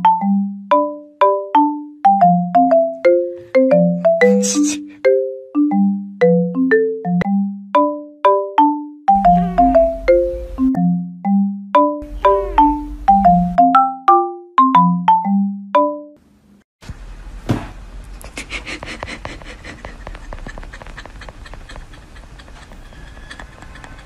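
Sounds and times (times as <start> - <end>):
marimba-like tune: 0.0 - 16.2
sharp knock: 17.4 - 17.8
rapid clicks and taps: 18.2 - 24.0.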